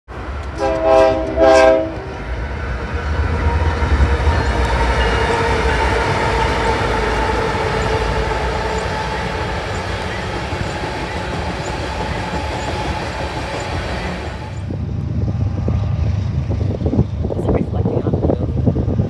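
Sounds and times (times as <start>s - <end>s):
locomotive engine rumble: 0.1s - 19.0s
locomotive air horn blasts: 0.6s - 2.1s.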